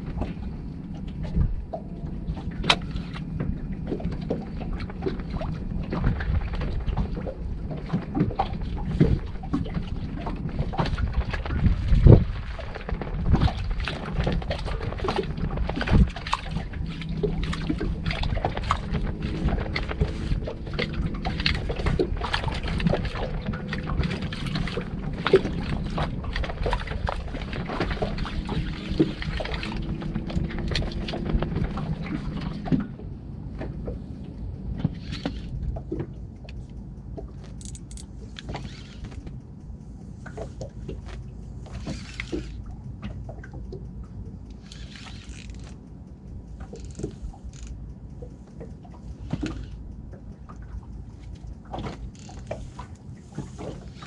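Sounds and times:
water lapping against boat hull: 0.0s - 54.0s
sharp knocks and clicks: 35.2s - 39.4s.

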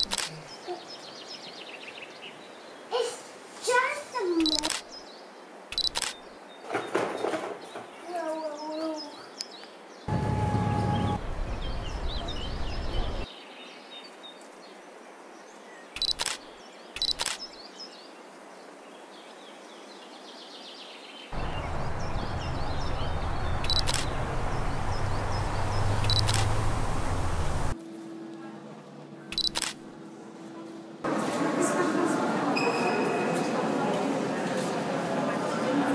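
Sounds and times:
camera shutter clicking: 0.0s - 0.3s, 4.4s - 4.9s, 5.7s - 6.2s, 16.0s - 16.4s, 17.0s - 17.4s, 23.6s - 24.1s, 26.0s - 26.5s, 29.4s - 29.8s
birds chirping: 4.4s - 13.5s, 20.9s - 27.8s
low rumbling noise: 10.1s - 13.2s, 21.4s - 27.8s.

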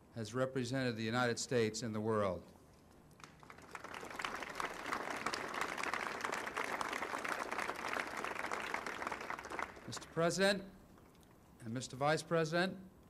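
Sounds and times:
crowd applauding: 3.2s - 10.3s.

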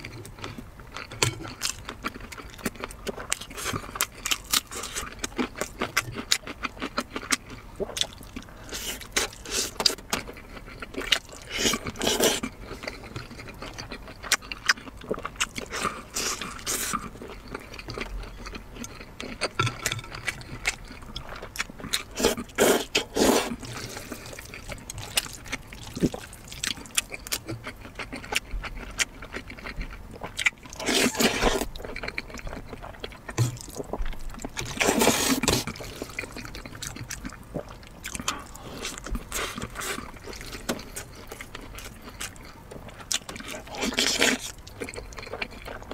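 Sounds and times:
wet chewing and lip smacking: 0.0s - 45.9s
slurping noodles: 11.4s - 12.5s, 22.1s - 25.2s, 30.7s - 31.7s, 34.7s - 36.4s.

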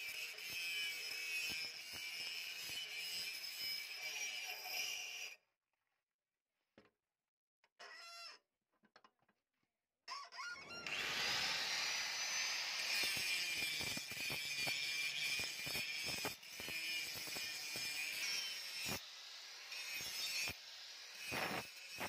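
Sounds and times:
angle grinder grinding steel: 0.0s - 5.4s, 10.8s - 22.0s.

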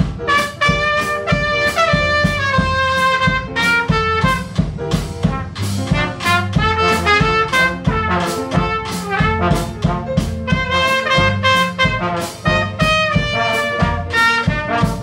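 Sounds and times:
drum kit beat: 0.0s - 15.0s
trombone: 0.0s - 15.0s
trumpet: 0.0s - 15.0s
walking double bass: 0.0s - 15.0s.

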